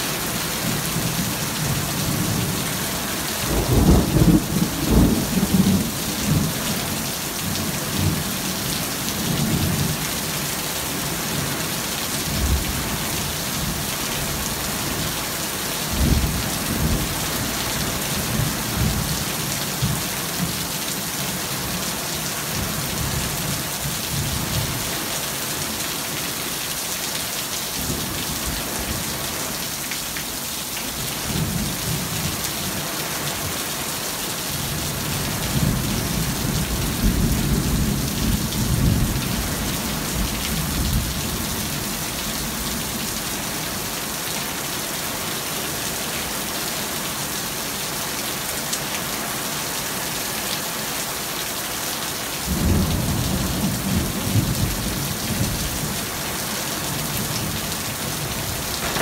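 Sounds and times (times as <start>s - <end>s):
steady rain pouring: 0.0s - 59.0s
thunder rumbling: 58.8s - 59.0s.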